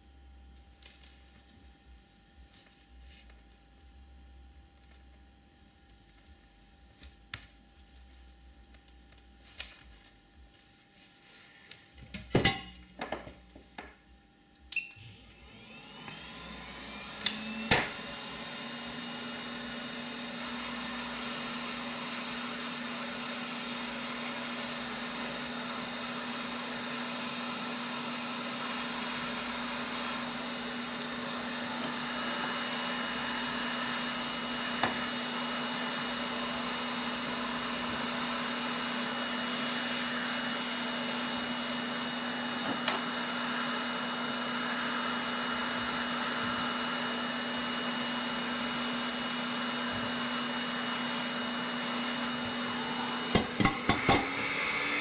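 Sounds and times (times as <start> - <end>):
heat gun blowing: 15.0 - 55.0.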